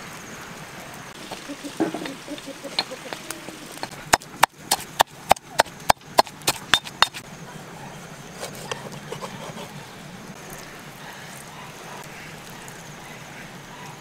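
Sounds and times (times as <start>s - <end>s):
pestle pounding in stone mortar: 1.2s - 7.2s.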